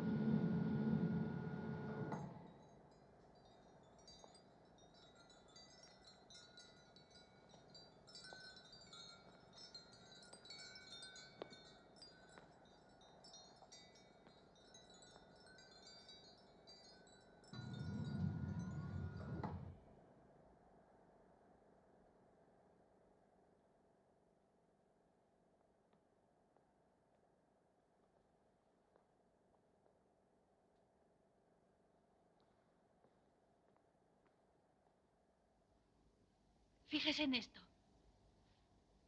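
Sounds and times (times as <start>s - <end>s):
wind chimes tinkling: 2.4s - 19.7s
lift door rumbling: 17.6s - 19.8s.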